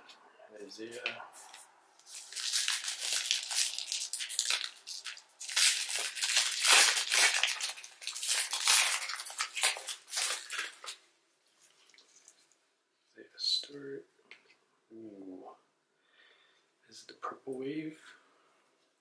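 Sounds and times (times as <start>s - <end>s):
plastic wrapper crinkling and tearing: 2.0s - 11.0s.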